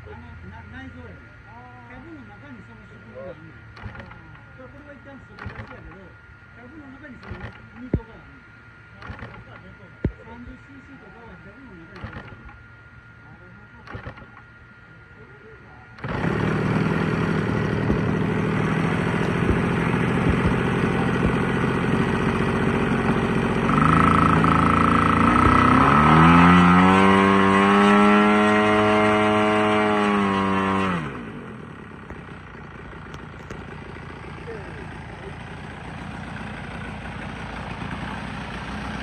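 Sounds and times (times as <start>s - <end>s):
model aircraft engine revving: 13.8s - 14.4s, 15.9s - 39.0s.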